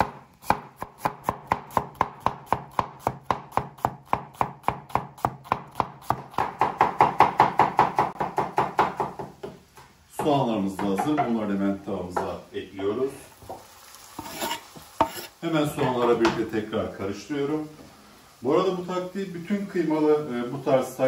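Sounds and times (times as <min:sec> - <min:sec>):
knife chopping onions: 0:00.0 - 0:09.6.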